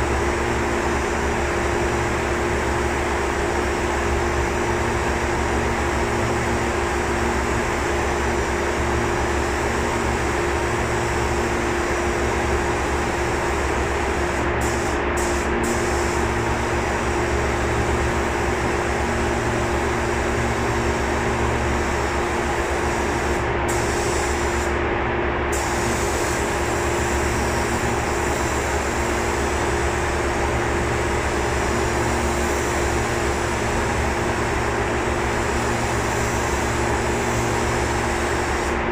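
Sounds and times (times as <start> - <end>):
mechanical hum: 0.0 - 38.9
spray gun hissing: 11.0 - 21.2, 21.8 - 24.7, 25.5 - 38.8.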